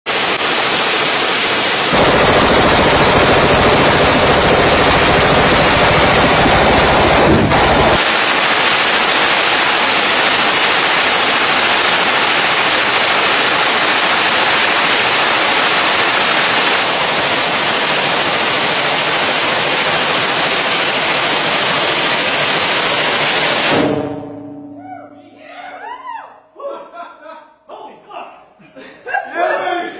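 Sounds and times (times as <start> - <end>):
machine gun firing continuously: 1.9 - 24.1.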